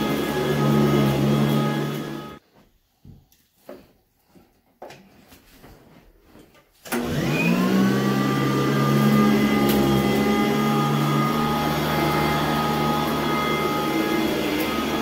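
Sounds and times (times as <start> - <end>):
vacuum cleaner motor running: 0.0 - 2.4, 6.9 - 15.0.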